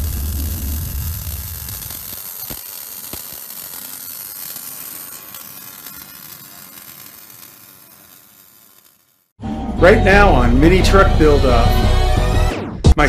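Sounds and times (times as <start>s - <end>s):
steady hiss: 0.0s - 9.4s.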